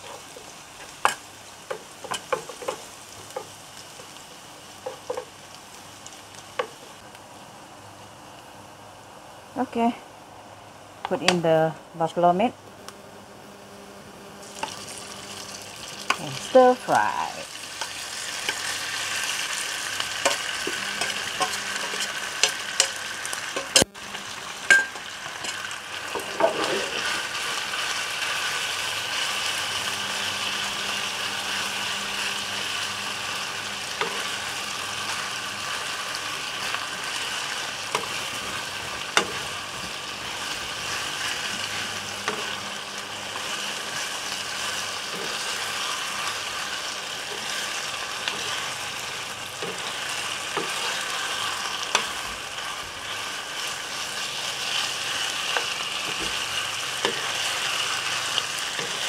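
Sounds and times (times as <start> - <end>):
stirring knocks and scrapes on pan: 0.0 - 4.1, 4.8 - 5.3, 26.1 - 27.6, 37.9 - 39.9
meat sizzling in hot oil: 0.0 - 7.1, 14.4 - 59.0.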